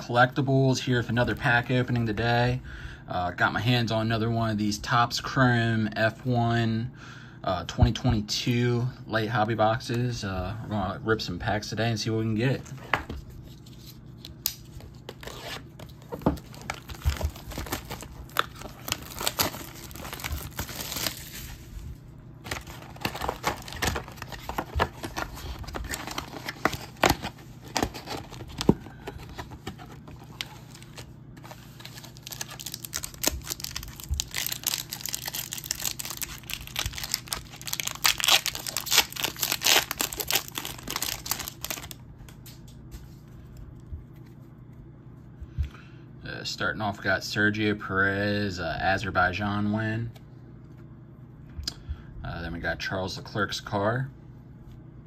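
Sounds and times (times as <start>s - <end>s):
wrapper crinkling and tearing: 15.1s - 21.6s, 22.4s - 42.0s.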